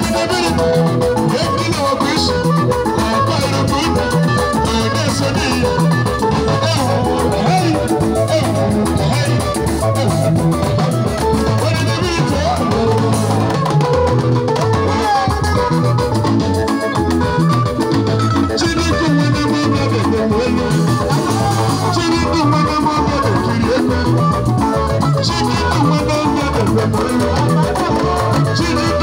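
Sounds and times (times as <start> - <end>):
live band with guitar and drums: 0.0 - 29.0.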